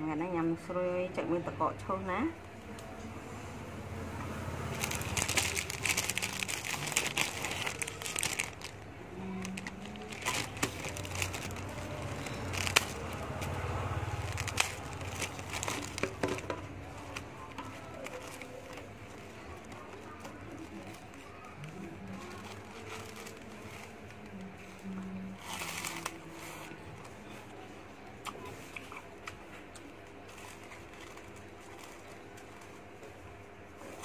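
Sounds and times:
plastic wrapper crinkling: 4.6 - 27.2, 29.4 - 33.1.

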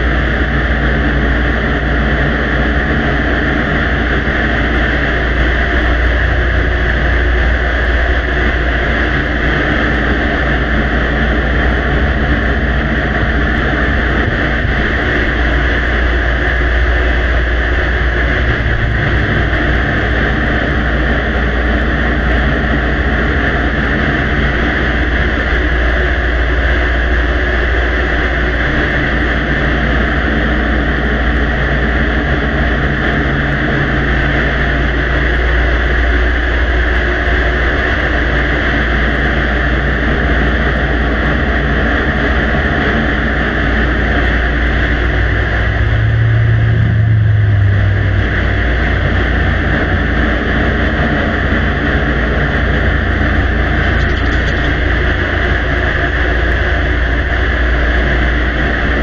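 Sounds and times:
low rumble and hum: 0.0 - 59.0.

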